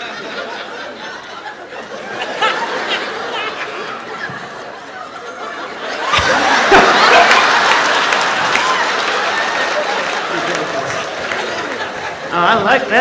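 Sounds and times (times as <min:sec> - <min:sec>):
audience laughing: 0:00.0 - 0:13.0.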